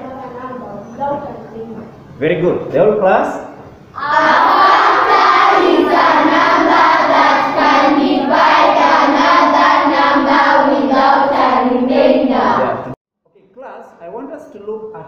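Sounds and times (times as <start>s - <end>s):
children reciting in unison: 4.0s - 13.0s.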